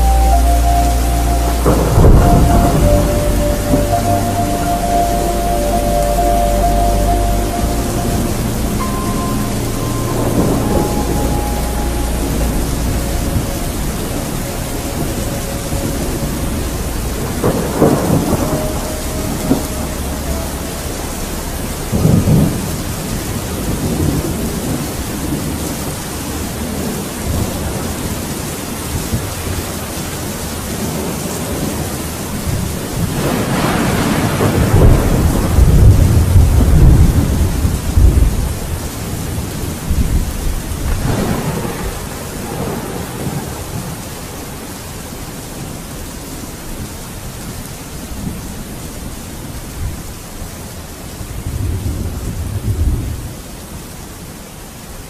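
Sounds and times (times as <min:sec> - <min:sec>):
thunder rumbling: 0:00.0 - 0:29.6, 0:30.7 - 0:44.7
steady rain: 0:00.0 - 0:55.0.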